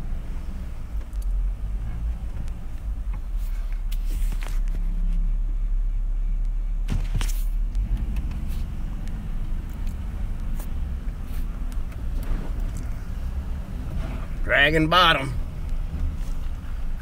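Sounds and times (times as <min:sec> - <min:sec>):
vehicle engine and tyres rumbling: 0:00.0 - 0:17.0
sharp knocks over ruts: 0:06.8 - 0:17.0.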